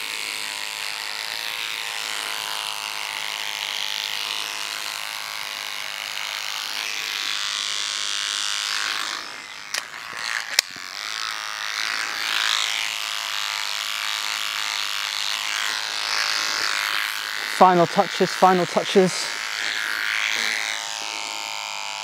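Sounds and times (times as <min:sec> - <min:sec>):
electric beard trimmer buzzing: 0:00.0 - 0:22.0
sharp clicks: 0:09.7 - 0:10.8.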